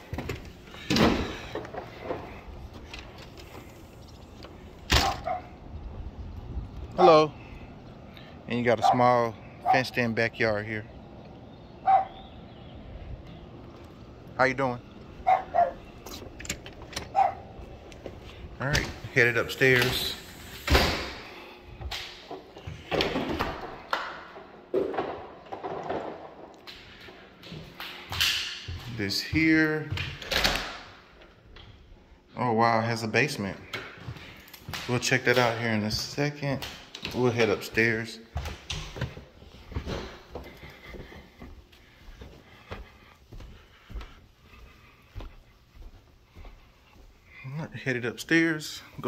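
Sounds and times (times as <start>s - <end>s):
door opening: 0.0s - 5.7s, 15.0s - 23.8s
footsteps on hardwood floor: 37.7s - 47.2s.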